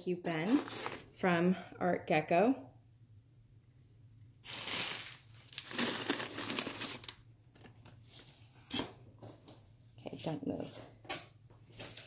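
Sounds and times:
paper crinkling: 0:04.4 - 0:08.8.

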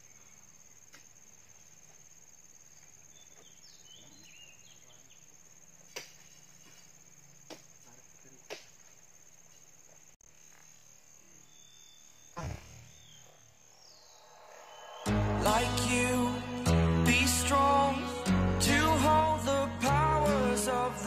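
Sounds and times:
insects trilling: 0:00.0 - 0:21.0
fruit bunches landing on a lorry: 0:05.9 - 0:07.8, 0:12.3 - 0:13.2.

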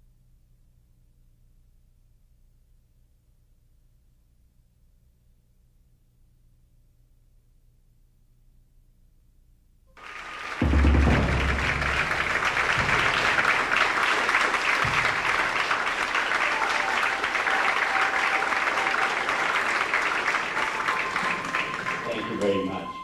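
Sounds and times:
audience applauding: 0:10.0 - 0:23.0.

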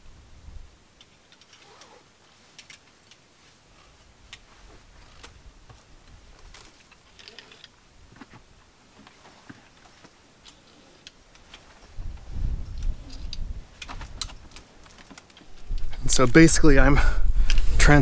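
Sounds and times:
climbing gear clicking on rope: 0:01.0 - 0:03.3, 0:04.3 - 0:07.8, 0:09.0 - 0:16.3.

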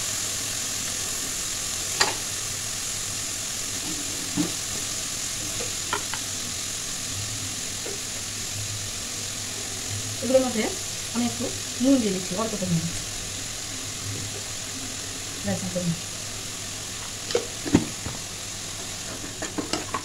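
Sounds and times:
vegetables sizzling in oil: 0:00.0 - 0:20.0
spatula knocking pan: 0:05.6 - 0:06.2.

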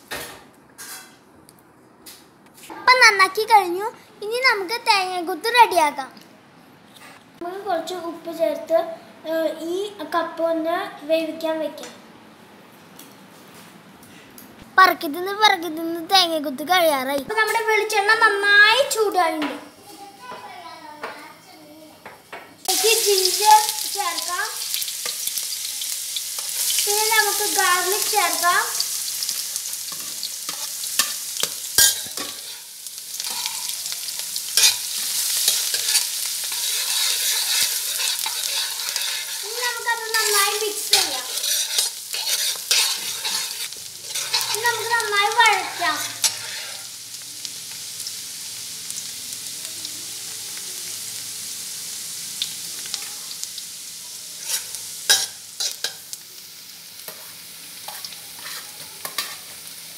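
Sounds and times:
garlic sizzling in oil: 0:22.0 - 0:59.9
spatula scraping wok: 0:22.7 - 0:47.1, 0:54.2 - 0:56.1, 0:57.0 - 0:59.7.

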